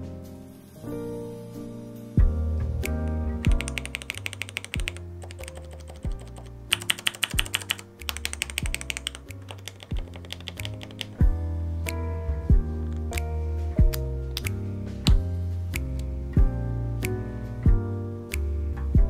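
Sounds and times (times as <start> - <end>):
background music: 0.0 - 19.0
keyboard switch clicks: 3.4 - 11.2.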